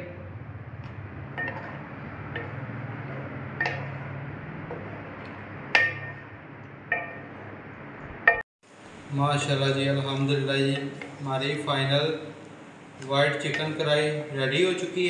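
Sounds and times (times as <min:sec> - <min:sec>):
steady low hum: 0:00.0 - 0:15.0
spatula knocking against pan: 0:01.4 - 0:04.9, 0:05.7 - 0:06.3.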